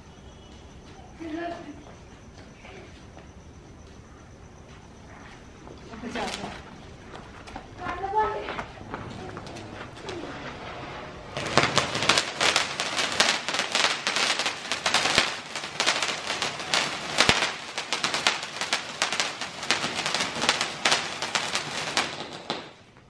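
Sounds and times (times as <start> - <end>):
firework fountain crackling: 5.9 - 23.0.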